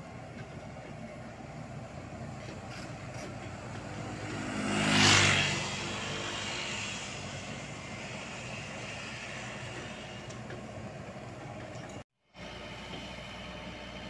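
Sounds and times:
excavator diesel engine running: 0.0s - 14.0s
rushing noise: 4.0s - 10.5s.

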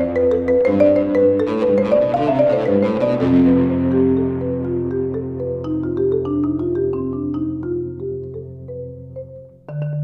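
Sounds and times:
marimba quick notes: 0.0s - 8.9s.

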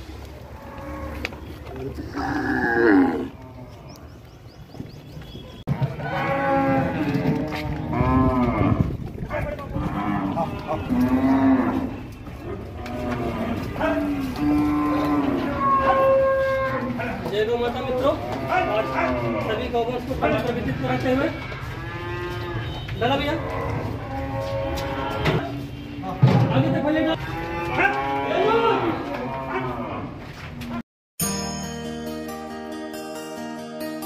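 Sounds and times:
cows mooing: 0.4s - 4.1s, 6.0s - 9.0s, 9.7s - 17.2s, 18.0s - 19.6s, 21.3s - 25.5s, 27.1s - 30.1s.

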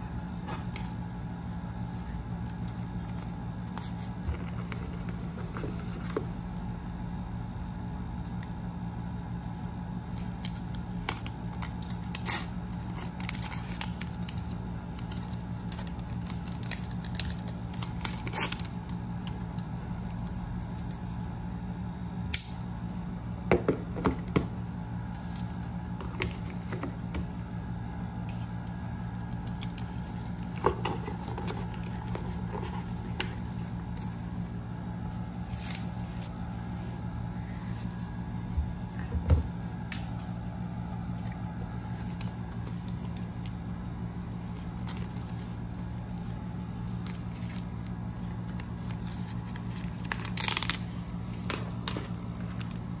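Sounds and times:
steady low hum: 0.0s - 53.0s
packaging handling clicks and scrapes: 9.2s - 21.2s, 29.3s - 34.4s, 44.2s - 53.0s.

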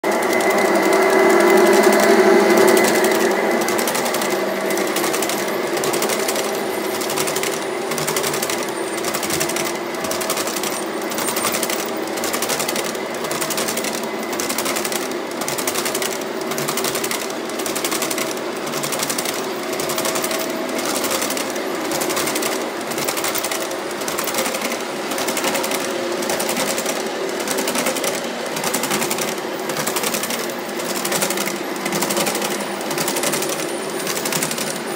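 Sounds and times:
model train motors humming: 0.0s - 34.9s
wheels clicking over rail joints: 0.0s - 34.9s.

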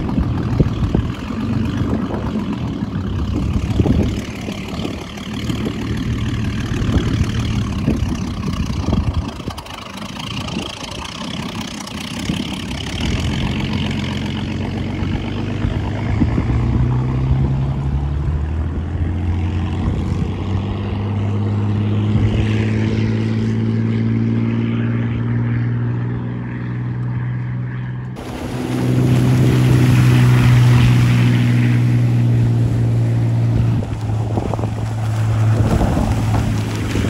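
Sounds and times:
water rushing along hull: 0.0s - 25.2s, 28.2s - 37.0s
boat engine running: 0.0s - 37.0s.

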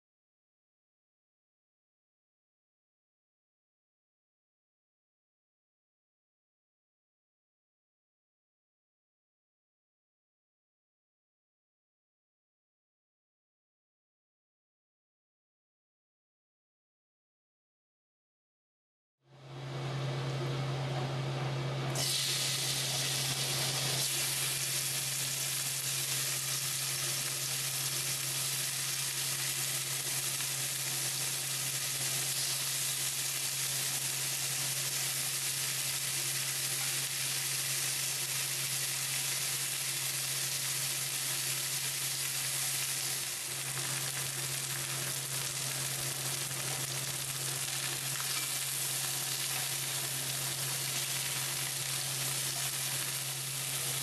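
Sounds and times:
chicken sizzling in hot oil: 22.0s - 54.0s.

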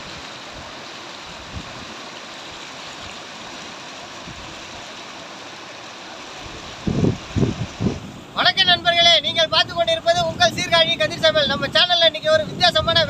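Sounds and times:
water rushing through sluice gate: 0.0s - 12.8s.

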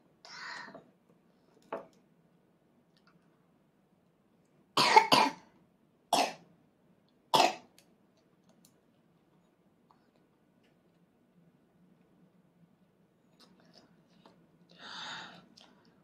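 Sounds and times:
person coughing: 4.8s - 5.4s.

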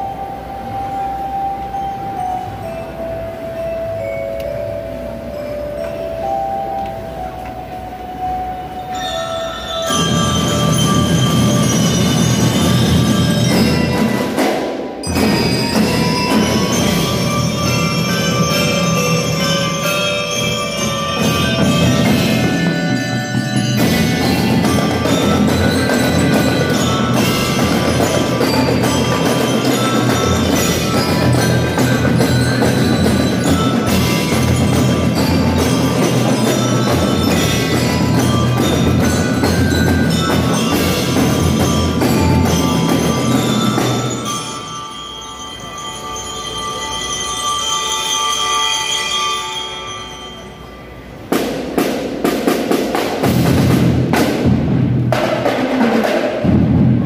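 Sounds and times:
bell lyres ringing a melody: 0.0s - 54.5s
marching snare and bass drums: 21.2s - 44.2s, 51.3s - 57.0s.

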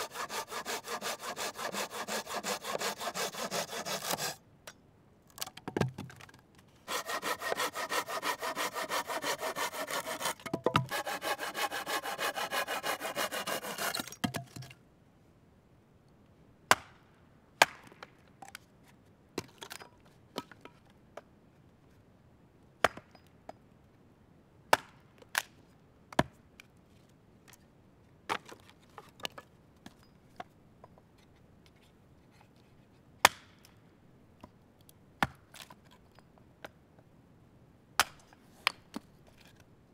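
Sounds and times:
saw cutting wood: 0.0s - 4.4s, 6.9s - 14.1s.

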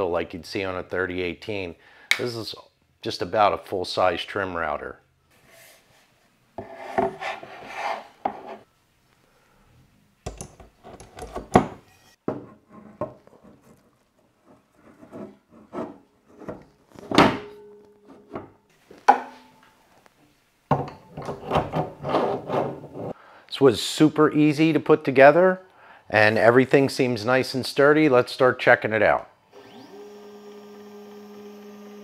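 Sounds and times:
knocks and scrapes on wooden workbench: 5.4s - 8.7s, 10.6s - 17.4s, 21.0s - 23.2s.

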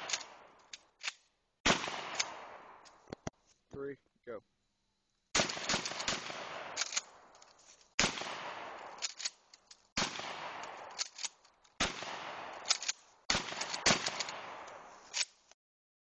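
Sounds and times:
shotgun blasts with echo: 1.6s - 2.8s, 5.3s - 7.3s, 8.0s - 9.0s, 10.0s - 11.0s, 11.8s - 12.7s, 13.3s - 14.9s
shotgun pump clacks: 6.8s - 7.6s, 8.8s - 9.9s, 10.6s - 11.8s, 12.5s - 15.4s.

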